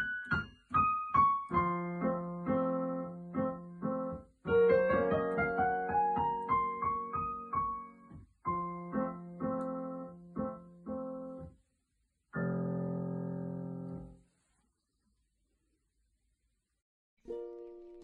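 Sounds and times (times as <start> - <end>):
digital piano playing: 0.0 - 11.6.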